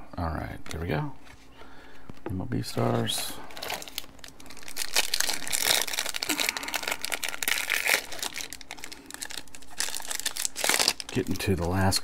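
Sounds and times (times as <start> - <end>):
foil wrapper tearing and crinkling: 3.5 - 12.0.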